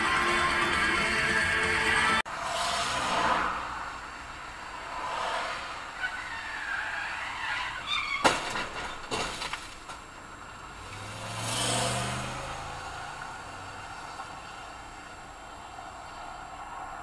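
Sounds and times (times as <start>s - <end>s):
vehicles passing: 0.0s - 17.0s.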